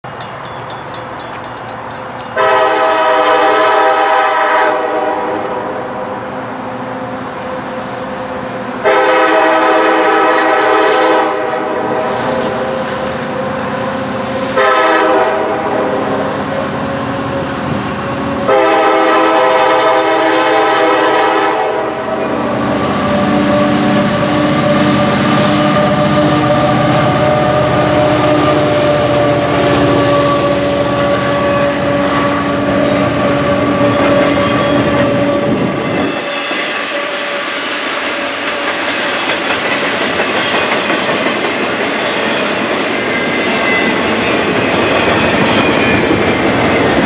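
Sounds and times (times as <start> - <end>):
train rumble: 0.0 - 47.0
locomotive air horn blasts: 2.4 - 5.8, 8.8 - 12.8, 14.5 - 16.6, 18.3 - 36.2.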